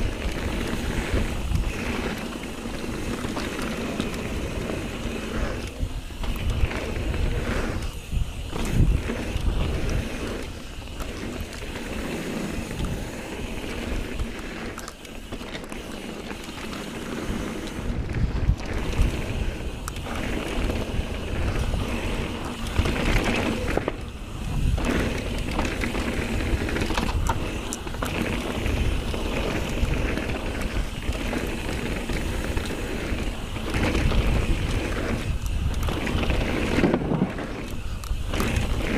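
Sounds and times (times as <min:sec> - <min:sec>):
bike rattling and clicking: 0:00.0 - 0:38.9
bike tyres crunching over dirt: 0:00.0 - 0:38.9
wind buffeting microphone: 0:00.0 - 0:38.9.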